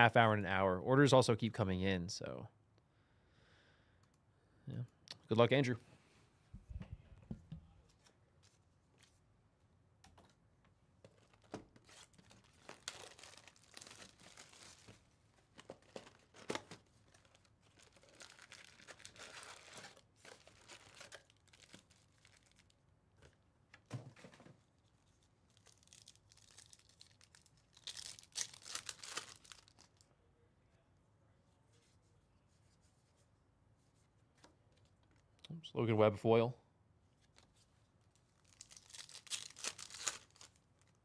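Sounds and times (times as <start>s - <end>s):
cardboard rustling and crinkling: 11.0s - 22.7s, 38.4s - 41.0s
foil wrapper tearing: 11.8s - 15.0s, 15.9s - 22.7s, 25.5s - 30.0s, 38.4s - 41.0s.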